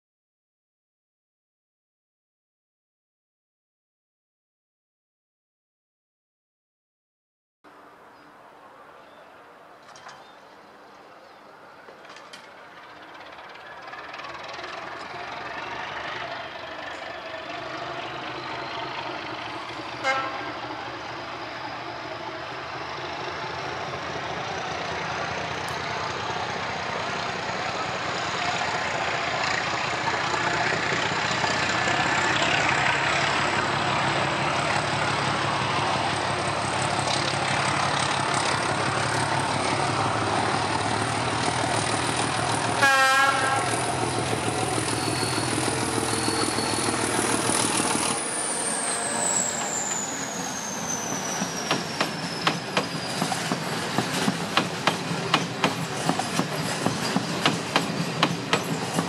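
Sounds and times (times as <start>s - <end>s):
train wheels clickety-clack: 11.9s - 17.1s, 51.0s - 59.0s
diesel locomotive engine throbbing: 12.4s - 59.0s
train horn blast: 20.0s - 20.6s, 42.7s - 44.0s.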